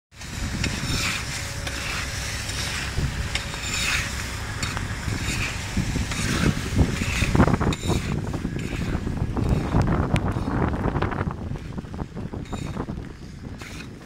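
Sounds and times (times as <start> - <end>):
wind rumble on microphone: 0.1 - 14.0
approaching diesel train: 0.2 - 9.8.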